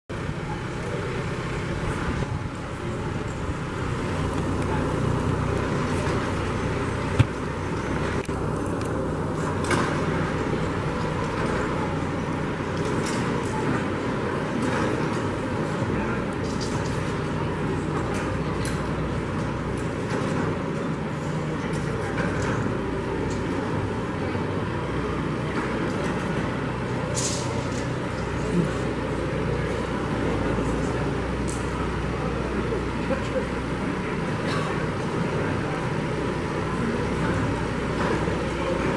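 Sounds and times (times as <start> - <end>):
tractor diesel engine running: 0.1 - 38.9.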